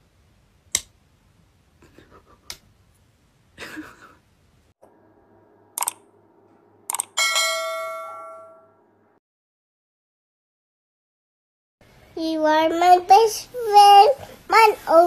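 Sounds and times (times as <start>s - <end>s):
mouse clicks: 5.8s - 6.0s
bright bell chime: 7.2s - 8.8s.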